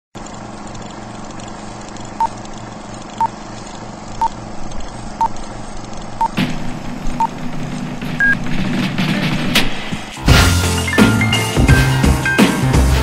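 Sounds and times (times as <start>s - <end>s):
film projector whirring: 0.2s - 9.4s.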